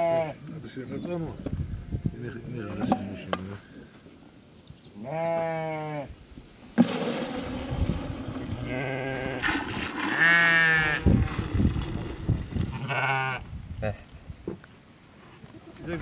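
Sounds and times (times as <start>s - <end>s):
sheep bleating: 5.0s - 6.1s, 8.6s - 9.4s, 10.1s - 11.0s, 12.7s - 13.4s
milk pouring into bucket: 6.8s - 12.8s.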